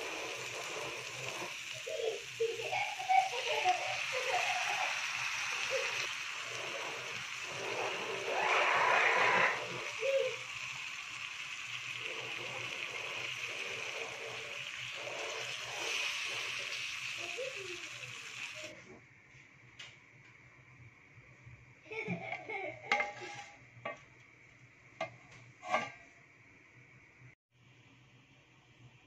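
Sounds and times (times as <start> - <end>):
food sizzling in a frying pan: 0.0 - 18.7.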